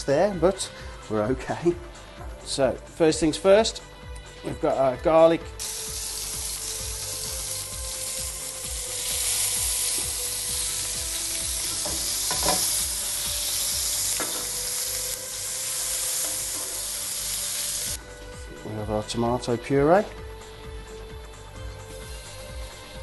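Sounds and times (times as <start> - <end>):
garlic sizzling in oil: 5.6 - 18.0.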